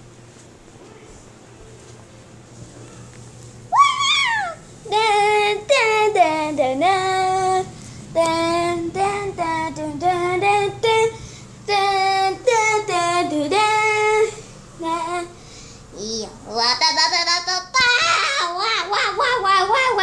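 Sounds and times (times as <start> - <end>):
child singing in high voice: 16.0 - 20.0.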